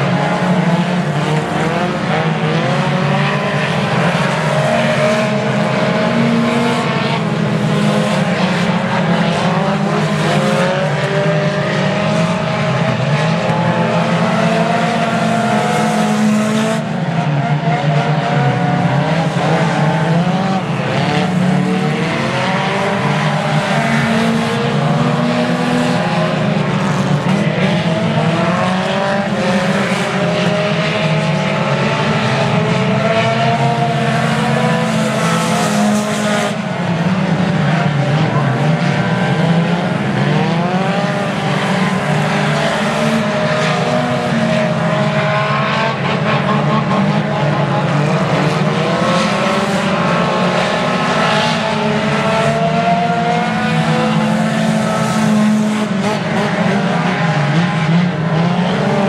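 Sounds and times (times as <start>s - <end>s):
race car engines: 0.0s - 59.0s.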